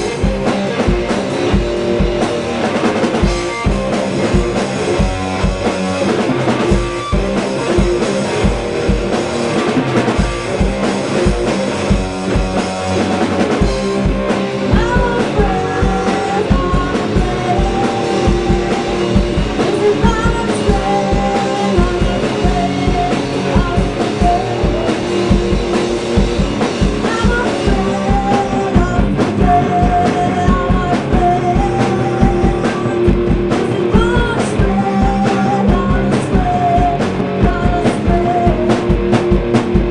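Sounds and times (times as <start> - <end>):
drum kit beat: 0.0 - 39.9
electric guitar: 0.0 - 39.9
person singing: 14.6 - 25.4, 27.0 - 38.9.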